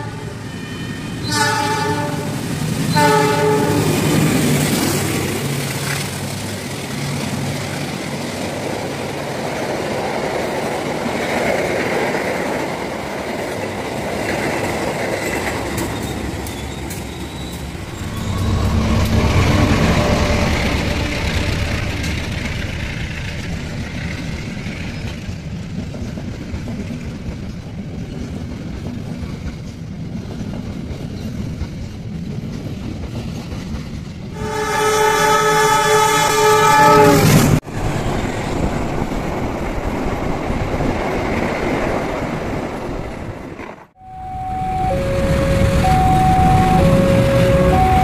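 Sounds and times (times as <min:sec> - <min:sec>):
train horn: 0:00.0 - 0:04.1, 0:17.8 - 0:22.3, 0:34.4 - 0:37.6, 0:44.0 - 0:48.0
train rumbling on rails: 0:00.0 - 0:48.0
alternating two-note tone: 0:44.0 - 0:48.0.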